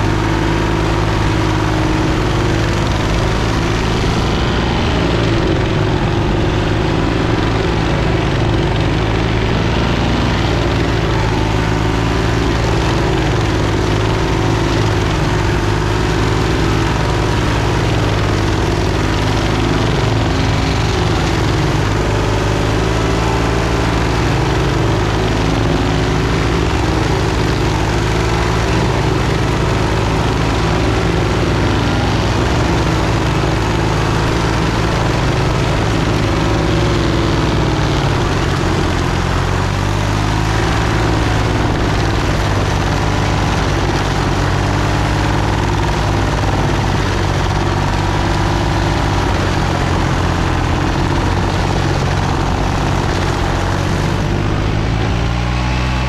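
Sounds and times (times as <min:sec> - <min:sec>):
mower engine running under load: 0:00.0 - 0:56.0
mulching head grinding stump: 0:00.0 - 0:56.0.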